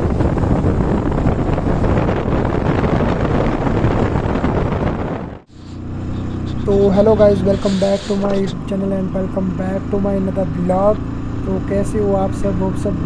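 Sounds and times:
wind buffeting microphone: 0.0 - 8.7
rumble of moving vehicle: 0.0 - 13.0
steady engine hum: 0.0 - 13.0.

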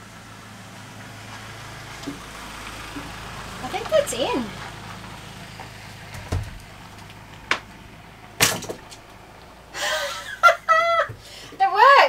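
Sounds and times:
person breathing: 11.2 - 11.6.

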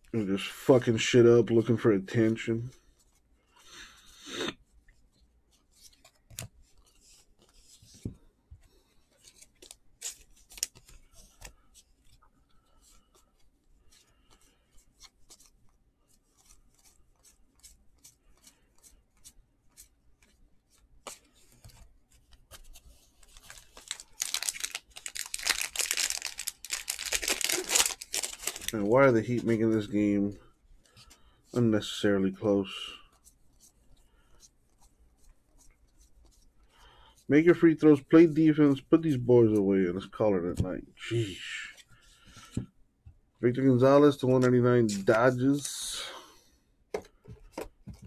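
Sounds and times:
trading cards rustling: 8.7 - 37.1, 43.7 - 46.1
card pack wrapper tearing: 23.2 - 28.8.

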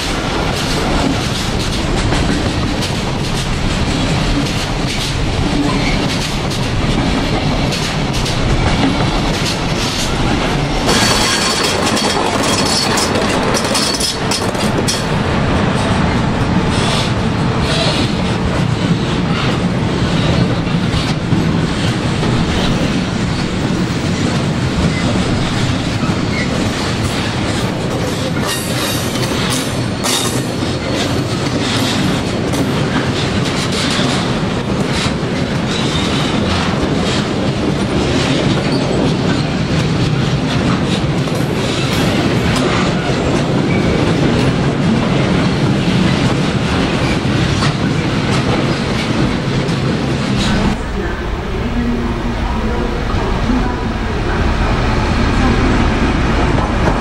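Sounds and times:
wheels clattering over rail joints: 0.0 - 15.9
train wagons rumbling: 0.0 - 57.0.

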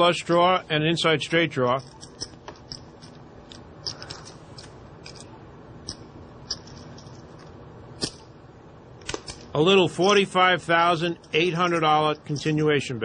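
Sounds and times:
poker chips clicking: 1.8 - 8.2.

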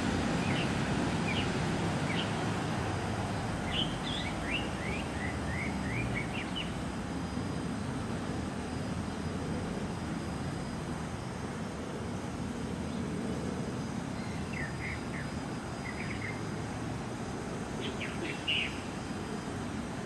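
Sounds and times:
low outdoor rumble: 0.0 - 20.0
small bird chirping: 0.4 - 2.4, 3.6 - 6.8, 14.2 - 16.4, 17.8 - 18.9.

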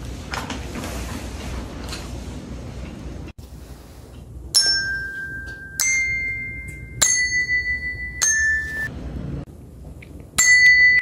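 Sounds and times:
touch bells ringing: 4.6 - 8.9, 10.4 - 11.0.

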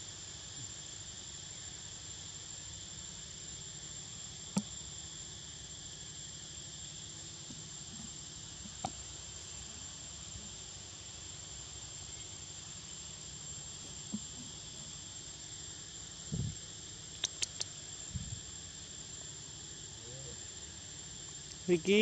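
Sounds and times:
insects whining: 0.0 - 22.0
sharp clicks: 17.1 - 17.8.

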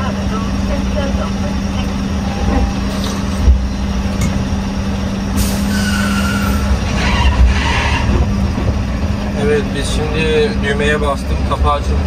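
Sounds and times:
truck engine running: 0.0 - 12.0
air brake hiss: 5.4 - 6.7.

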